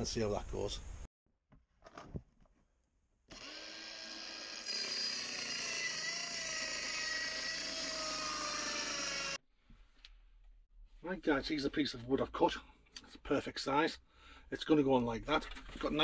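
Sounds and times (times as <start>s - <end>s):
circular saw cutting board: 3.3s - 9.4s.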